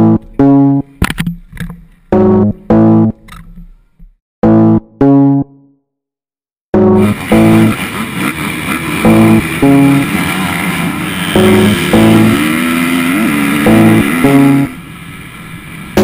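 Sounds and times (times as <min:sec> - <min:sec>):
motocross bike engines: 0:07.0 - 0:16.0.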